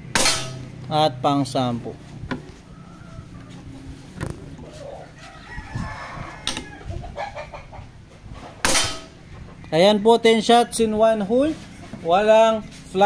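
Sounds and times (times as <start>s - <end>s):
rooster crowing: 2.5s - 4.0s, 4.6s - 7.7s.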